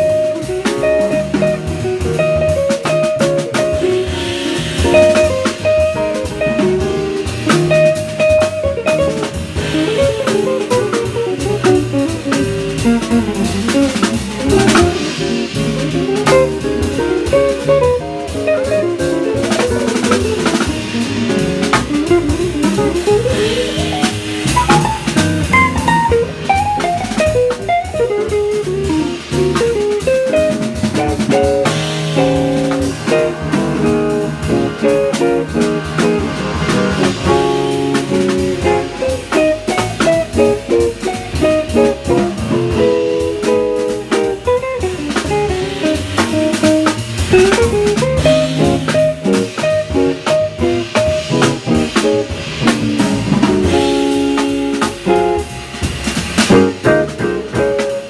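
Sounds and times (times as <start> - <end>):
drum kit on cymbals and drums: 0.0 - 58.0
plucked upright bass: 0.0 - 58.0.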